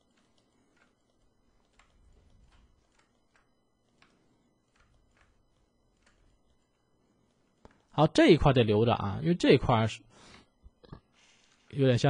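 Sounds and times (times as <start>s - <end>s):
computer mouse clicks: 0.0s - 8.0s.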